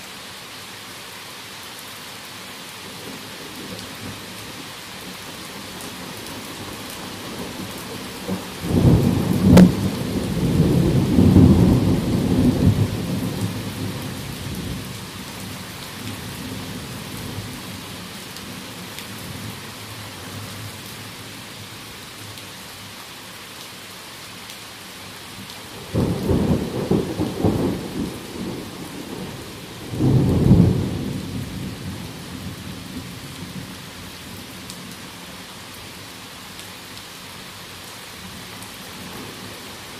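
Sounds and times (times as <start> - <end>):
heavy rain falling: 0.0 - 39.9
thunder crack and rumbles: 8.2 - 14.8, 25.8 - 32.6.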